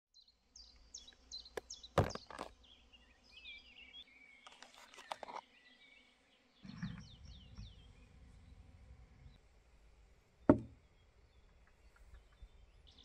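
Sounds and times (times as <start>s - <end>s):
songbird singing: 0.2s - 13.0s
sharp knocks: 10.5s - 10.8s.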